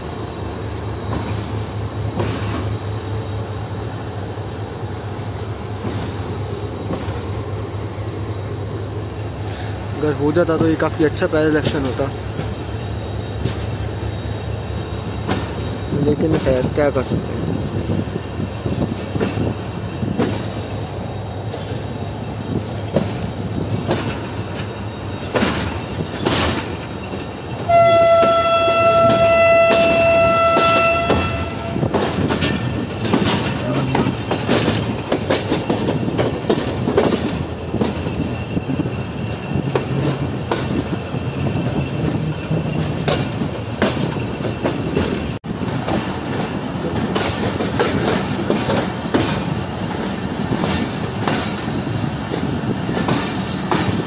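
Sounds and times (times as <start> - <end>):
train rumbling: 0.0 - 54.0
wheel clacks over rail joints: 22.5 - 54.0
locomotive horn blast: 27.7 - 31.9.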